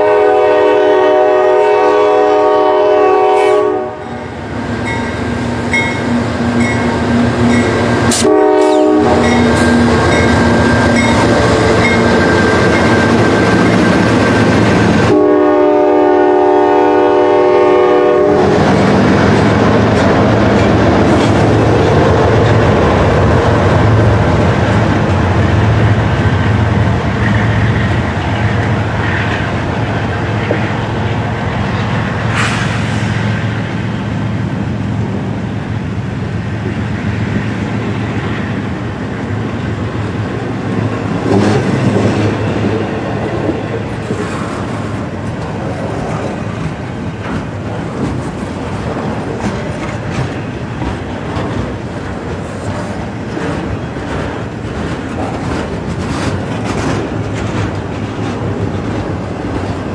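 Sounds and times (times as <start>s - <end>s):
train air horn blasts: 0.0s - 4.2s, 8.1s - 12.0s, 15.0s - 18.6s
diesel locomotive engines running: 0.0s - 59.9s
train wheels rumbling and clacking: 0.0s - 59.9s
crossing bell ringing: 4.0s - 8.0s, 8.7s - 14.1s.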